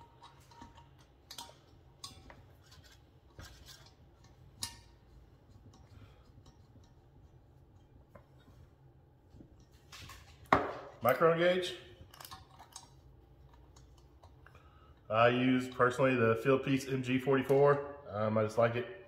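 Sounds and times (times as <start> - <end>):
metallic clicks of hose fitting: 0.0 - 8.5, 12.0 - 16.0
low steady hum: 0.0 - 19.0.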